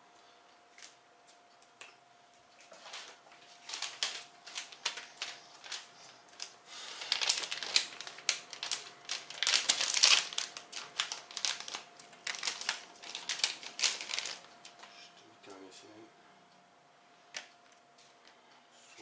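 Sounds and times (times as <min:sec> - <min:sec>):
plastic bag crinkling: 0:02.6 - 0:15.0.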